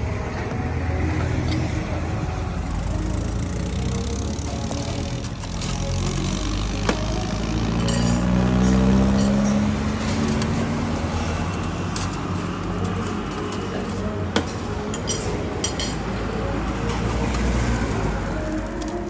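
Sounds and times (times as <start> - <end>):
roadside traffic noise: 0.0 - 19.0
vehicle passing: 0.0 - 19.0
metal spoons clinking on plates: 7.7 - 17.0.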